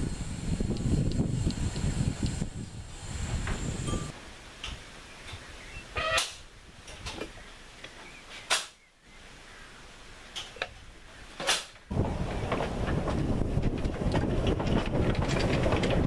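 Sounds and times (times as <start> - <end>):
steam train rumble: 0.0 - 4.2, 11.9 - 16.0
sharp isolated clicks: 0.7 - 2.4, 8.5 - 8.8, 11.4 - 11.9.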